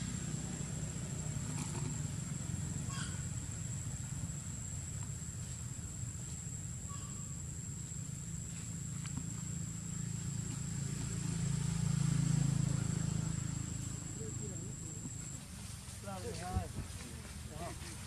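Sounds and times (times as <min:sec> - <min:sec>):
constant low rumble: 0:00.0 - 0:18.0
high-pitched insect drone: 0:00.0 - 0:18.0.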